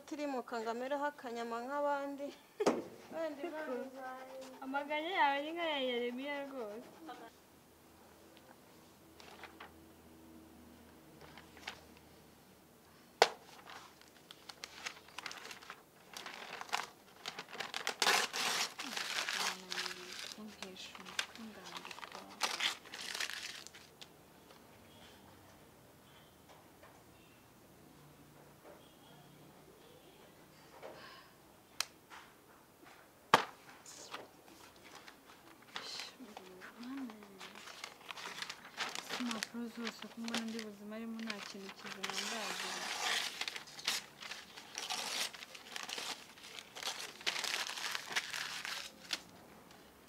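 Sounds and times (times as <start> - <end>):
notebook pages rustling: 9.2 - 9.7, 13.3 - 23.9, 34.5 - 49.3
paper tearing and crumpling: 13.5 - 23.9, 34.8 - 49.3.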